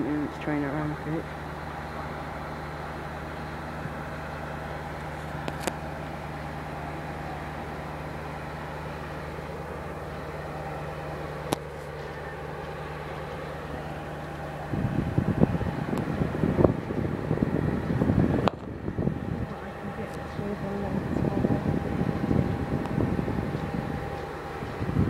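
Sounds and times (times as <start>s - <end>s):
engine idling hum: 0.0s - 25.0s
wind buffeting microphone: 13.8s - 25.0s.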